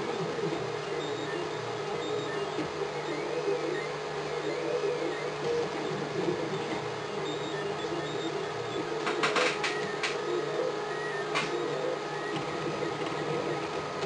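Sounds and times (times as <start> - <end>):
sharp clicks: 9.0 - 10.2.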